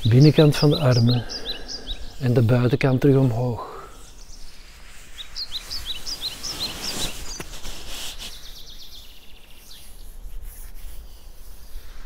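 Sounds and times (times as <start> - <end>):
small bird chirping: 0.0 - 7.6
hands rubbing on fabric: 4.7 - 12.0.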